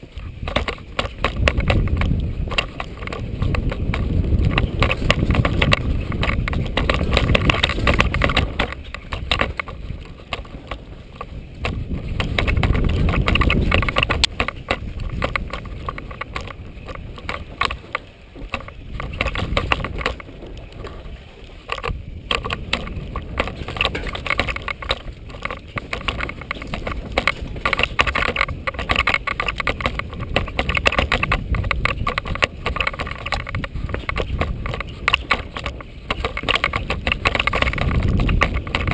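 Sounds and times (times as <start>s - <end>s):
bike rattling over bumps: 0.0s - 38.9s
bike tyres on loose dirt: 0.0s - 38.9s
wind buffeting microphone: 0.0s - 38.9s.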